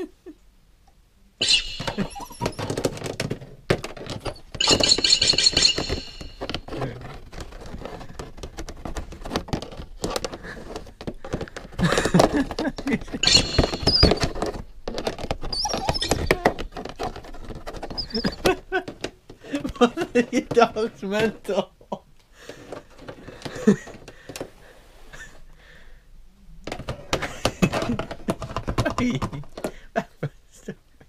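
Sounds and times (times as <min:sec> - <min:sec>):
keyboard keys clattering: 0:01.4 - 0:03.3, 0:03.9 - 0:06.8.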